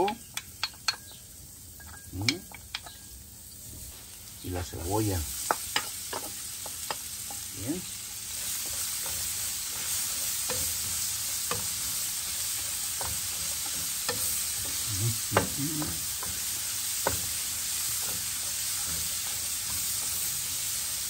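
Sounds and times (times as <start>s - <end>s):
spatula clicking against pan: 0.0s - 1.1s
onion and garlic sizzling in pan: 0.0s - 21.0s
spatula stirring and scraping: 5.3s - 21.0s.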